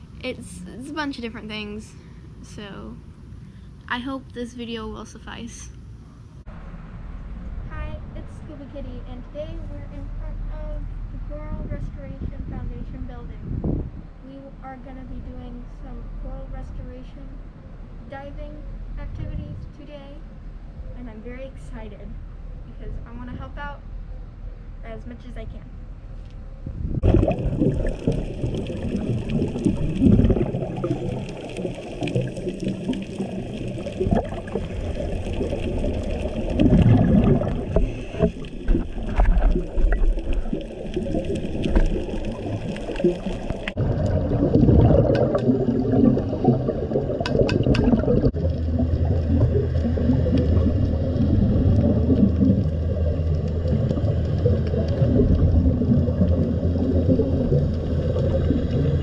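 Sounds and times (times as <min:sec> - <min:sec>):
low hum: 0:00.0 - 0:59.0
muffled water noise: 0:00.0 - 0:59.0
exhaled bubbles bursting: 0:26.7 - 0:59.0.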